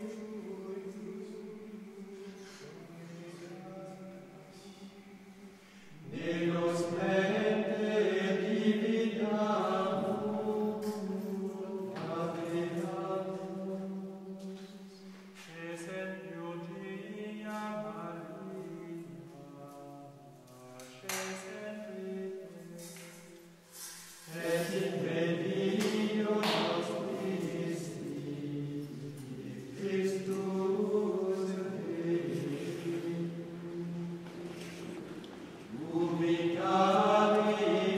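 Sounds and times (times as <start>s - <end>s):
men singing chant: 6.0s - 14.0s, 24.3s - 34.2s, 35.7s - 37.9s.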